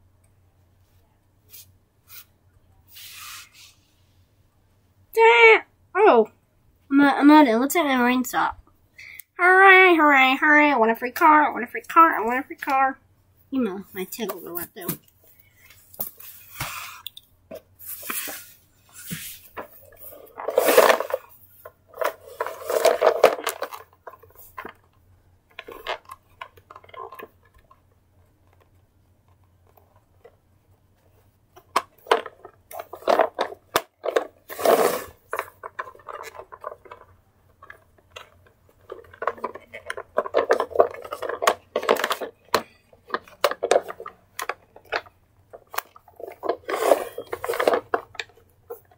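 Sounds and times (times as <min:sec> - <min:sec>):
plastic toy car clacking and knocking: 0:20.4 - 0:30.4, 0:31.5 - 0:48.9.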